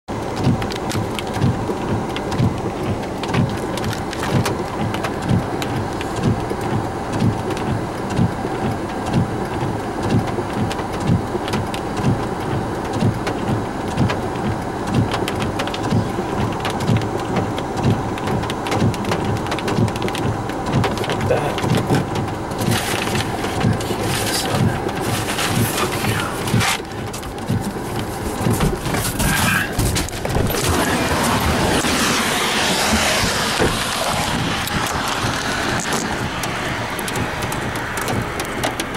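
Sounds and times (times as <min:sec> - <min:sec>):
rain hitting a car: 0:00.1 - 0:38.9
road noise: 0:00.1 - 0:38.9
low thuds: 0:12.0 - 0:38.9.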